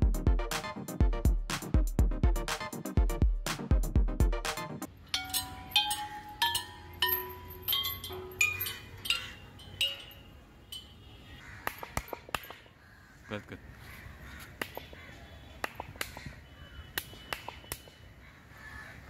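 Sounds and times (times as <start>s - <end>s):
music: 0.0s - 4.9s
tubular chimes struck with mallet: 5.1s - 10.3s
sharp taps: 11.6s - 12.7s.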